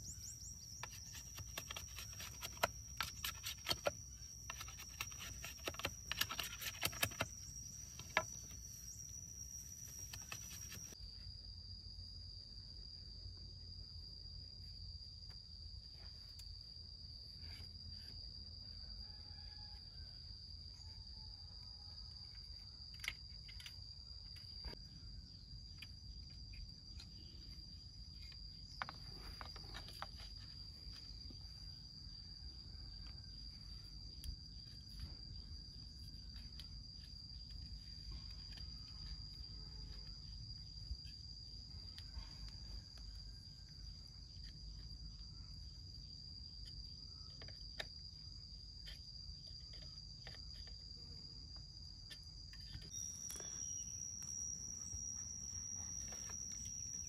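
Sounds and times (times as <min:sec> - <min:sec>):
high-pitched insect drone: 0:00.0 - 0:13.0, 0:52.3 - 0:57.0.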